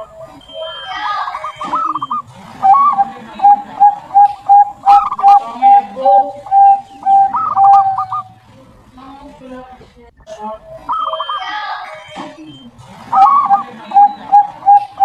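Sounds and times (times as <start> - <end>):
dove cooing: 0.0 - 8.4, 13.1 - 15.0
higher wavering bird calls: 0.0 - 8.4, 13.1 - 15.0.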